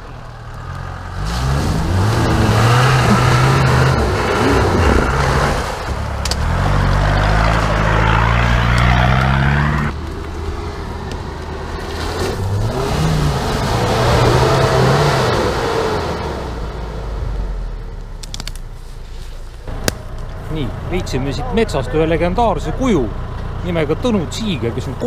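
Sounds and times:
vehicle churning through mud: 0.0 - 17.6
suv engine revving: 0.0 - 17.9.

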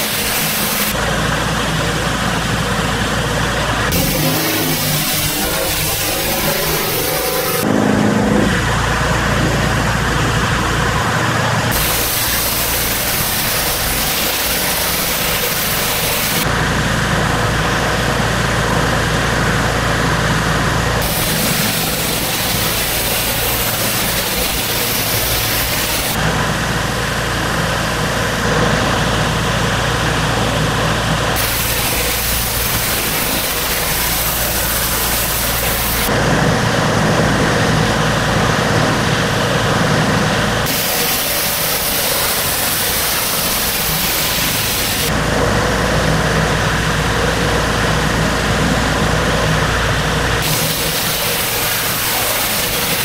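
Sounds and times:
high-pressure water spray hiss: 0.0 - 7.7, 11.7 - 16.6, 21.0 - 28.7, 31.2 - 36.1, 38.1 - 45.4, 50.4 - 53.0
pressure washer engine drone: 0.0 - 53.0.

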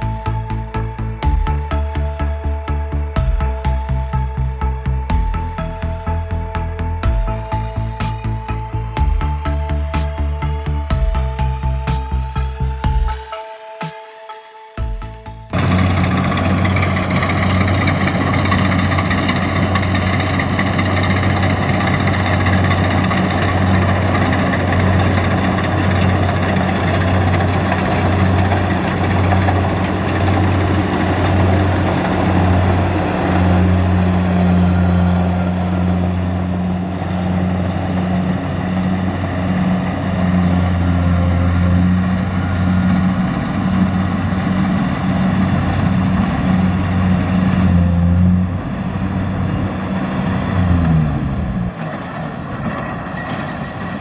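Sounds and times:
combine harvester diesel engine: 15.5 - 54.0.

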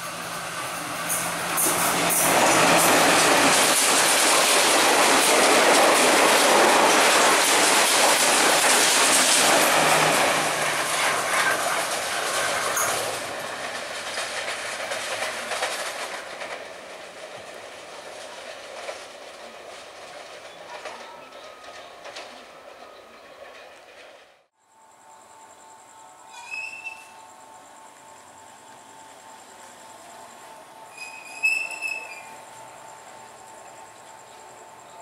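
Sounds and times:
wheels clattering over rail joints: 0.0 - 24.3
train carriages rushing past: 0.0 - 24.5, 25.4 - 35.0.

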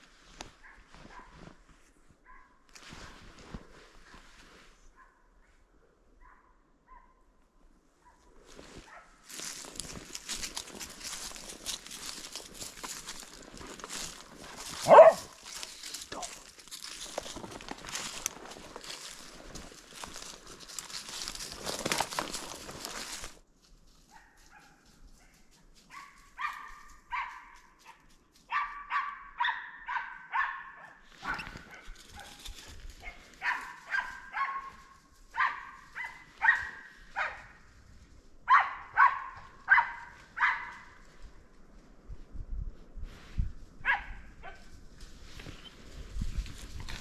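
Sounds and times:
dog barking: 0.6 - 1.4, 2.2 - 2.6, 4.9 - 5.3, 6.2 - 7.3, 8.0 - 9.2, 14.8 - 15.4, 24.1 - 32.4, 33.0 - 37.6, 38.5 - 41.0, 43.8 - 44.7.

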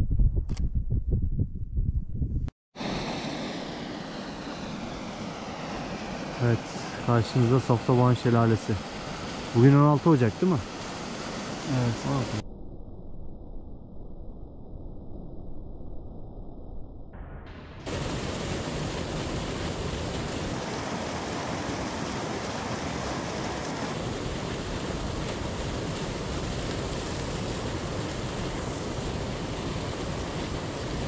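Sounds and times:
faint low water rush: 2.8 - 12.4, 17.4 - 31.0
waterfall roaring: 6.0 - 12.4, 17.9 - 31.0.

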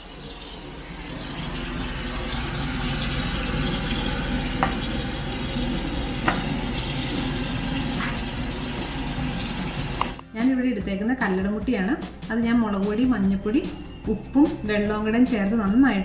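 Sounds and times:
food sizzling in hot oil: 0.0 - 10.2.

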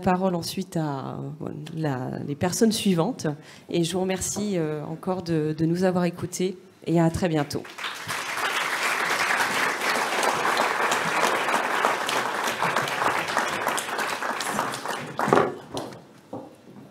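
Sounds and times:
audience applauding: 7.6 - 16.0.

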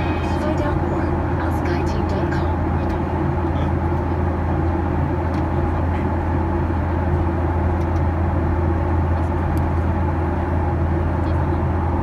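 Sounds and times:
steady tones: 0.0 - 5.2
jet engine drone in cabin: 0.0 - 12.0.

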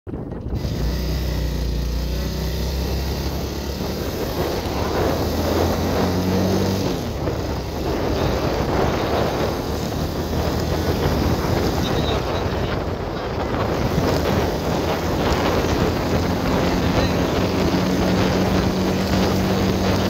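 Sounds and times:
motorcycle engine running: 0.1 - 20.0
wind rushing over microphone: 0.1 - 20.0.

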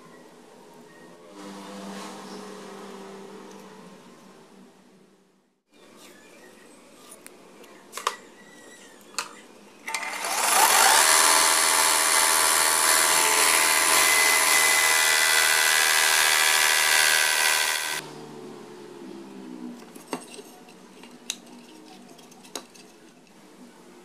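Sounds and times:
belt sander sanding wood: 10.0 - 18.0.

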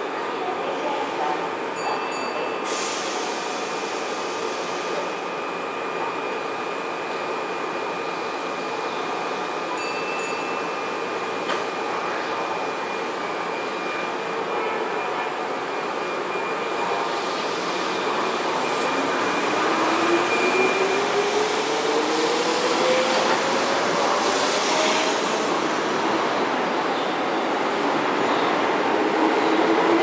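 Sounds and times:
electric train pulling away: 15.5 - 30.0.

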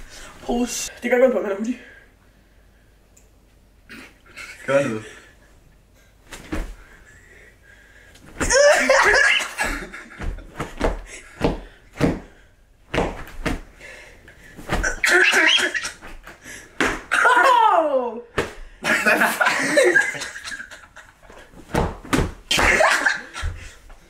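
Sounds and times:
sharp knocks and thuds: 21.7 - 23.6.

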